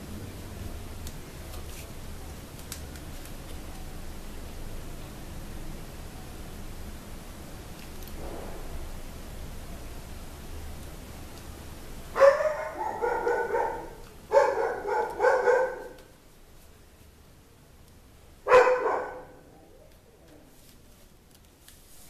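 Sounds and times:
dog barking: 12.2s - 16.1s, 18.4s - 19.4s.

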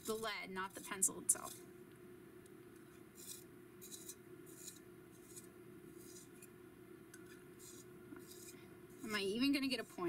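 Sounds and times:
pencil sharpener scraping: 3.2s - 6.5s, 7.6s - 10.0s.

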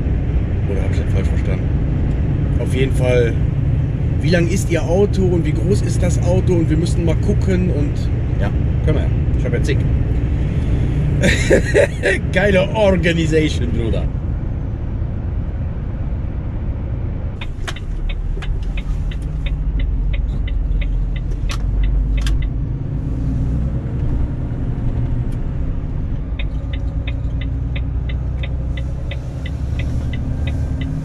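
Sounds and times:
diesel engine and road rumble: 0.0s - 31.0s
turn indicator ticking: 17.4s - 22.8s, 24.8s - 31.0s.

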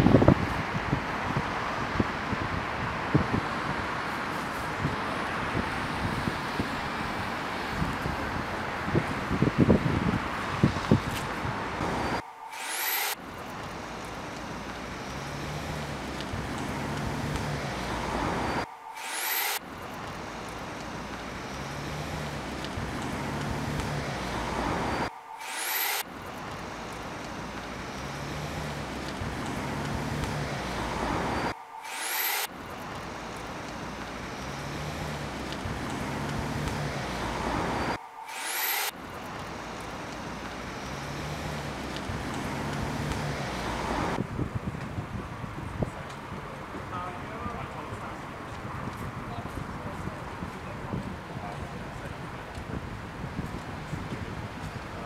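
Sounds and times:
passing vehicles hiss: 0.0s - 55.0s
short high rising whine: 11.8s - 44.2s
low engine hum: 13.3s - 18.7s, 19.7s - 25.1s, 26.2s - 31.5s, 32.6s - 38.0s.

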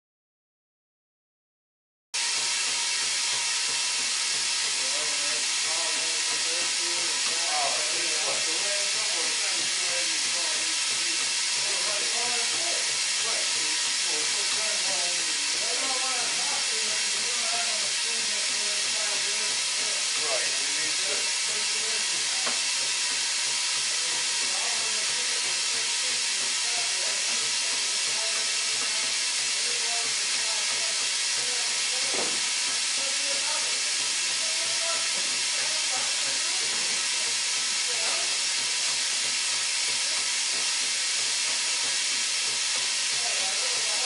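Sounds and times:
grinder high-pitched hiss: 2.2s - 44.0s.

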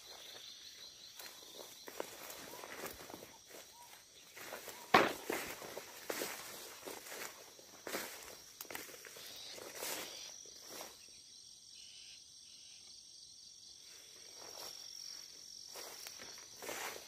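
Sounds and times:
insects trilling: 0.0s - 17.0s
footsteps brushing through grass: 1.1s - 11.0s, 14.3s - 17.0s.

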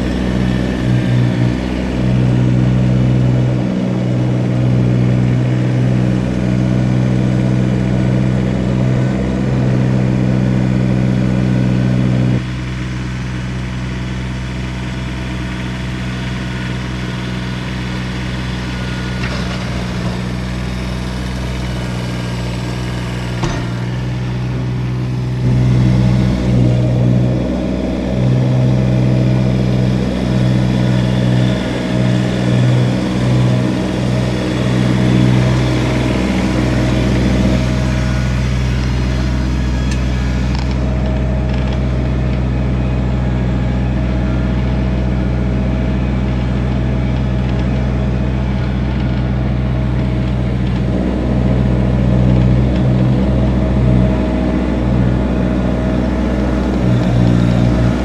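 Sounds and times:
diesel tractor engine running: 0.0s - 58.0s.

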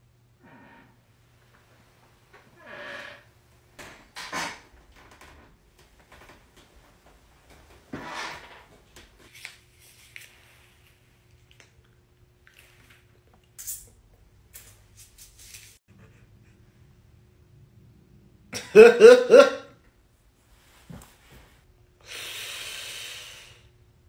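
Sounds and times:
chair squeaking: 2.5s - 5.5s, 7.8s - 8.8s.

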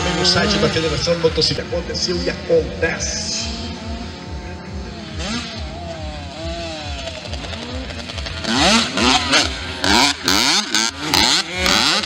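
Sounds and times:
motocross bike engines running: 0.0s - 12.0s
motorbike revving: 0.0s - 12.0s.

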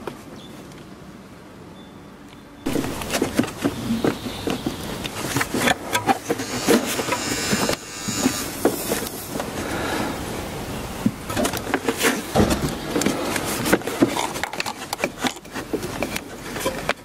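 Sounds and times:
rubber rubbing against metal: 2.7s - 9.3s.

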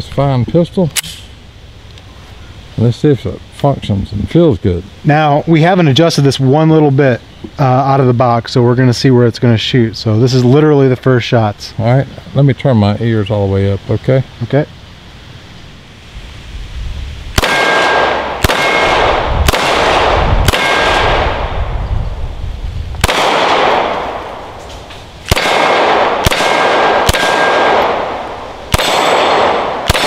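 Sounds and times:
pistol shots echoing: 17.4s - 21.6s, 23.0s - 24.6s, 25.2s - 30.0s.

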